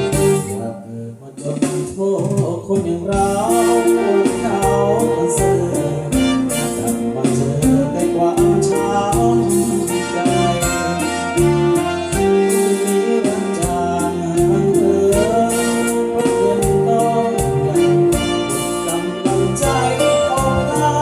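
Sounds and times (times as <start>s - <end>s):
acoustic guitar with band backing: 0.0s - 21.0s.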